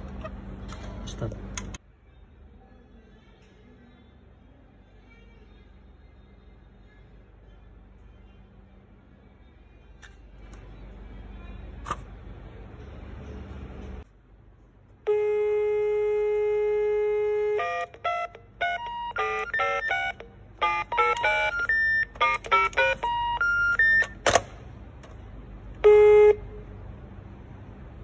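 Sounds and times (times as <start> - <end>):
telephone dial tone: 16.6 - 24.3
keypad dialling beeps: 17.4 - 24.2.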